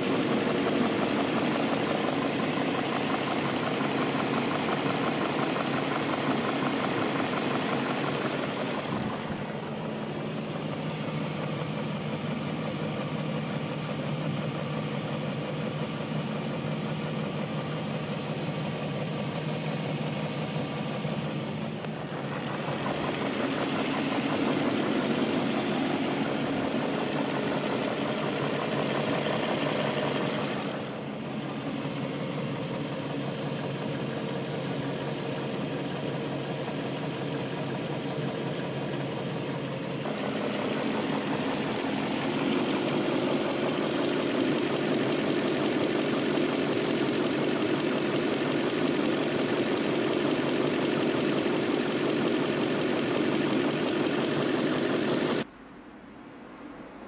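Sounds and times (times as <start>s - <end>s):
engine ticking: 0.0s - 55.4s
car engine idling: 0.0s - 55.5s.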